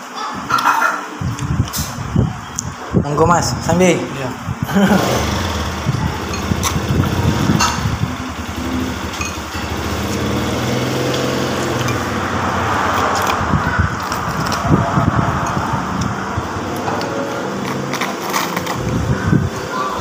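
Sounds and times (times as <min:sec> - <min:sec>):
small engine running: 0:04.9 - 0:15.7.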